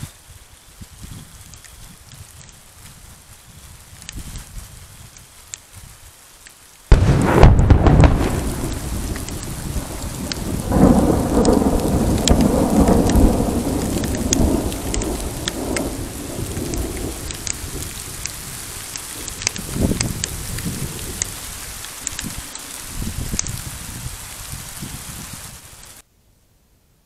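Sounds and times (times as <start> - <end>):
rain falling: 0.0 - 26.0
sharp raindrop ticks: 0.3 - 26.0
thunder crack and rumble: 6.9 - 22.4.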